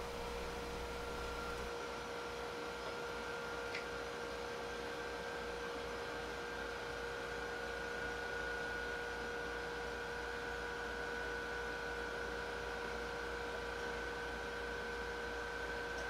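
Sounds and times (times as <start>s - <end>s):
low steady hum: 0.0s - 1.8s.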